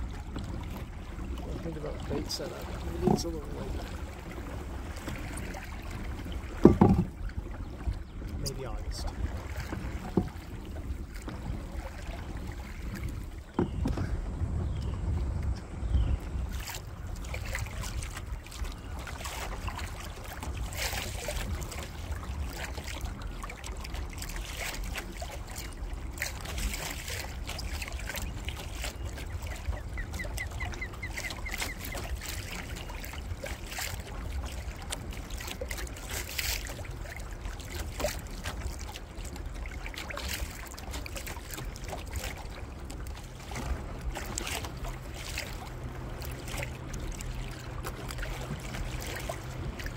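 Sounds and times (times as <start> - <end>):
wind rumble on microphone: 0.0 - 24.5
small waves lapping against hull: 0.0 - 49.9.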